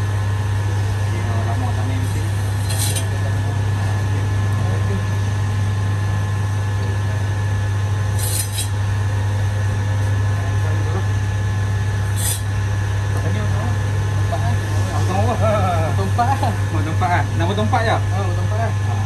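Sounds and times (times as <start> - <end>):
blade cutting through chicken: 8.2 - 8.8.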